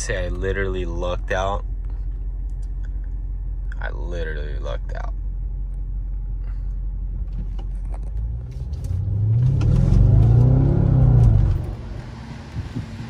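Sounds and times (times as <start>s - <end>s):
car engine accelerating: 5.5s - 13.0s.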